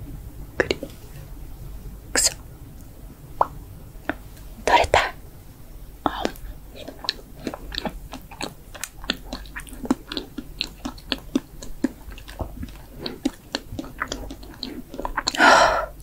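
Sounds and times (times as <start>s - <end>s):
wet mouth smacking and clicking: 0.6s - 0.9s, 6.1s - 15.4s.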